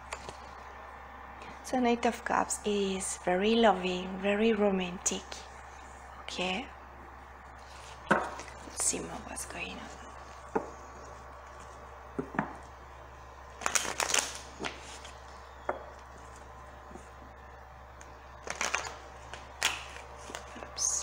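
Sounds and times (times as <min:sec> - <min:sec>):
low hum: 0:00.0 - 0:21.0
cards being shuffled: 0:18.4 - 0:20.7.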